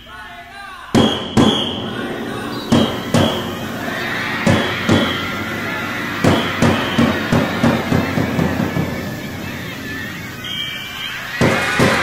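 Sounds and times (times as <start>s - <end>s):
large drum strikes: 1.0s - 10.5s.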